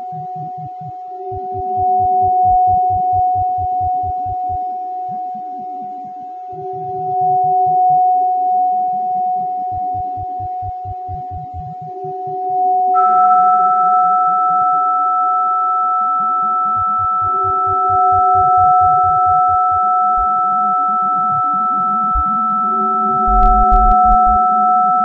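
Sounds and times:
held sine tone: 0.0s - 25.0s
higher sine tone with hiss: 0.0s - 25.0s
fluttering low pulse: 22.1s - 22.4s, 23.3s - 24.4s
low swelling tone: 22.1s - 24.4s.

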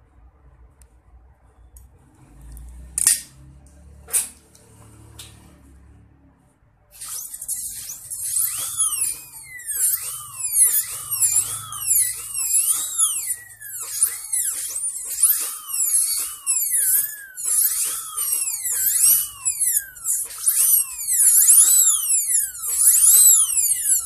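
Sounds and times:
dental drill whining: 7.0s - 24.0s.

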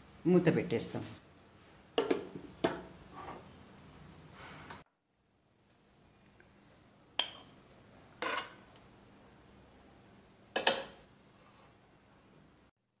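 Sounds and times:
spoon scraping and clinking pan: 7.2s - 7.6s, 8.2s - 8.7s, 10.6s - 11.0s.

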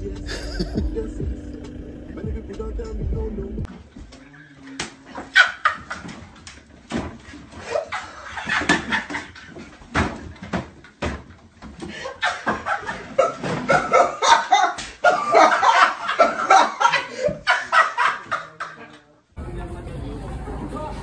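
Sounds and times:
people laughing loudly: 0.0s - 1.4s, 5.1s - 6.3s, 7.6s - 9.7s, 11.9s - 19.0s
vocal noises: 0.0s - 4.6s.

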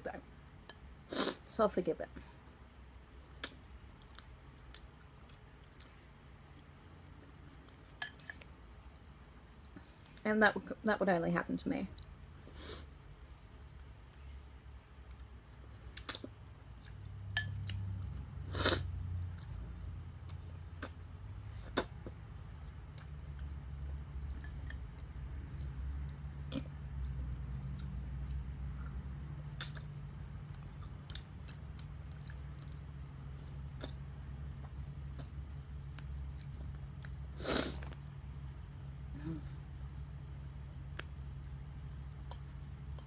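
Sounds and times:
person chewing noodles: 24.2s - 29.0s, 29.6s - 38.2s.

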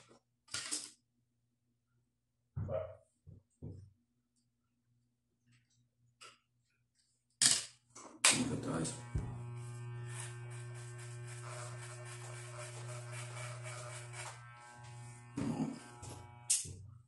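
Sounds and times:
electric hair clippers buzzing: 8.3s - 16.9s.

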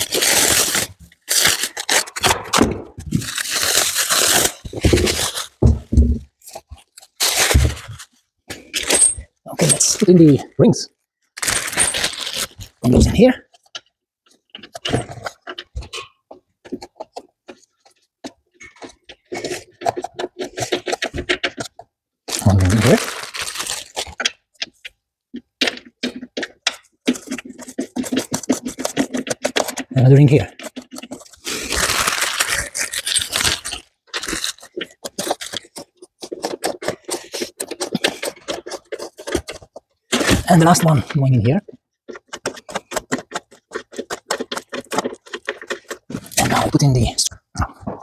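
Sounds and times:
packaging crinkling: 0.0s - 2.4s, 3.0s - 5.7s, 6.3s - 8.3s, 11.2s - 13.8s, 16.9s - 24.4s, 26.1s - 41.1s, 42.1s - 46.9s.

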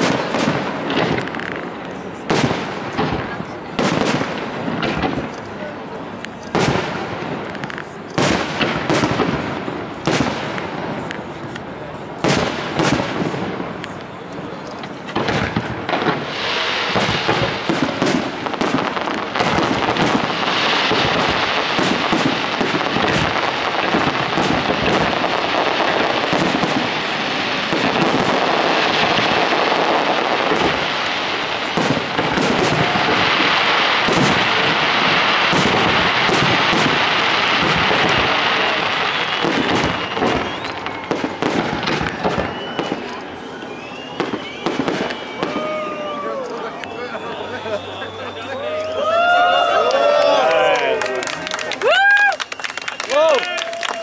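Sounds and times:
continuous fireworks crackle: 0.0s - 54.0s
fireworks shells bursting: 14.6s - 45.8s.

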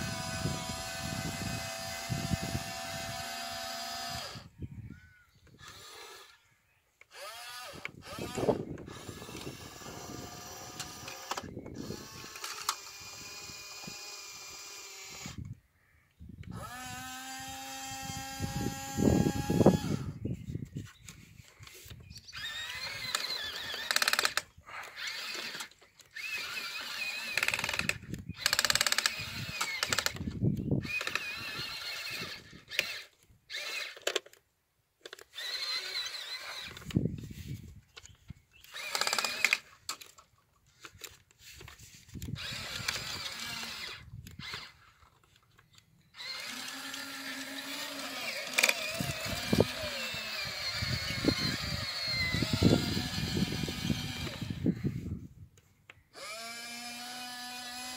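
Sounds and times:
small electric motors whining: 0.0s - 15.6s, 16.4s - 34.4s, 35.0s - 57.9s.

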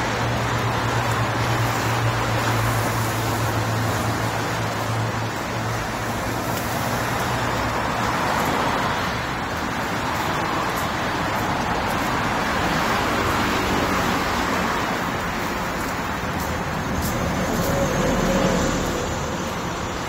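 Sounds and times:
road traffic passing: 0.0s - 20.0s.

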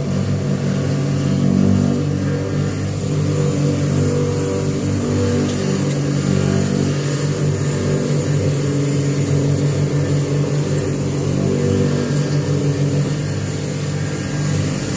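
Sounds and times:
grinder motor humming: 0.0s - 14.9s.

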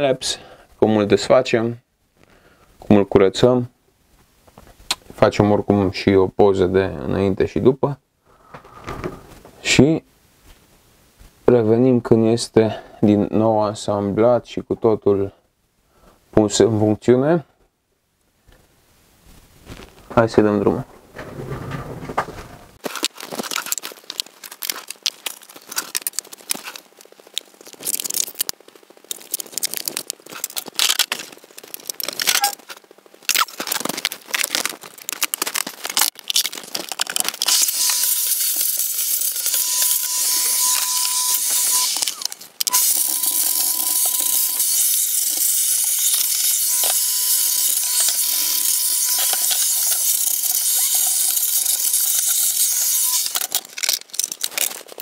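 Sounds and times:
computer parts clicking and rattling: 21.2s - 55.0s.

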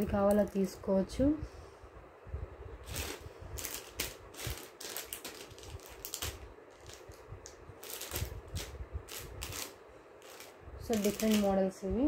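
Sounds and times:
necklaces clicking and rustling: 7.8s - 11.5s.

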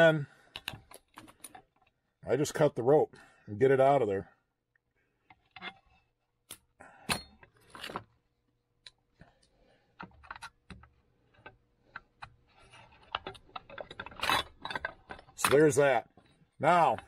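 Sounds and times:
hand tools clicking and rattling: 13.1s - 15.9s.

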